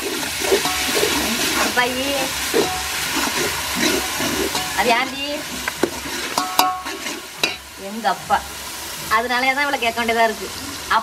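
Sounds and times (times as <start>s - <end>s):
metal spatula scraping pot: 0.0s - 7.7s
vegetables sizzling in oil: 0.0s - 11.0s.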